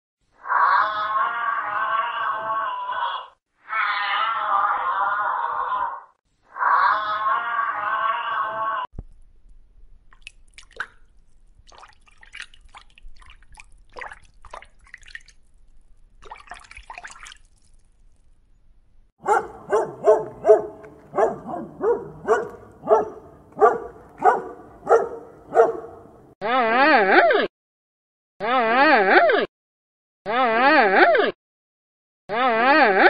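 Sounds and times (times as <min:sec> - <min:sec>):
faint water drips: 0:10.1 - 0:18.3
dog barking: 0:19.2 - 0:26.3.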